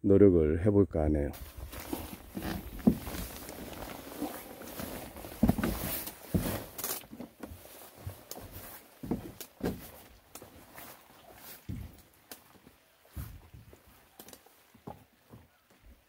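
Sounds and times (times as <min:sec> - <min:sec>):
footsteps on loose rock: 0:01.4 - 0:12.5.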